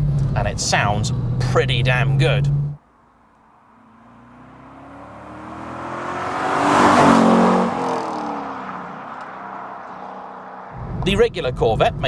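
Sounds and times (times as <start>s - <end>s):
sports car driving past: 3.4s - 11.1s.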